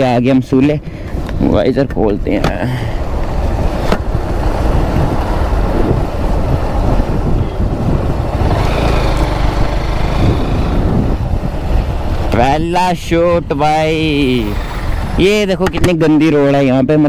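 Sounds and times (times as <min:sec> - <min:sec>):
wind rushing over microphone: 0:00.0 - 0:17.0
motorcycle engine running: 0:04.2 - 0:12.5.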